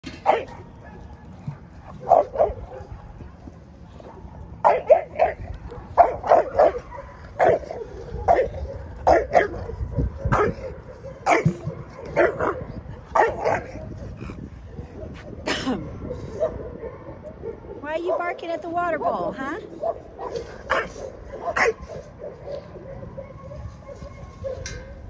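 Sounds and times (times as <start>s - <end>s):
dog barking: 0.2s - 1.3s, 2.0s - 3.0s, 4.0s - 14.0s, 15.8s - 18.3s, 19.8s - 25.0s.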